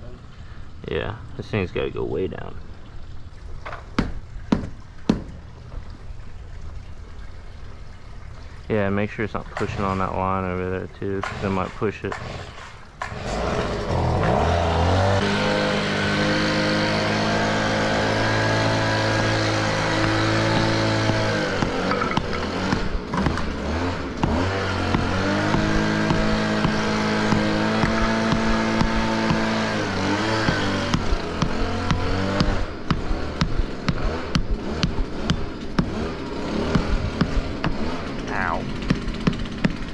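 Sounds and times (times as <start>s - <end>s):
motor running: 13.3s - 39.9s
sharp taps: 24.2s - 29.6s, 30.4s - 36.0s, 38.8s - 39.9s.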